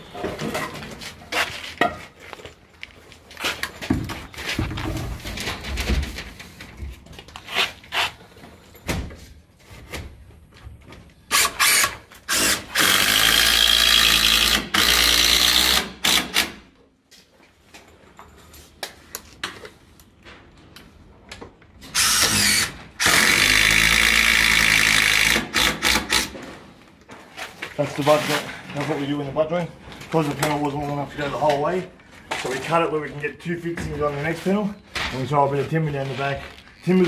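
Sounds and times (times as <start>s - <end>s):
cordless drill driving screws: 11.3s - 16.5s, 21.9s - 26.4s.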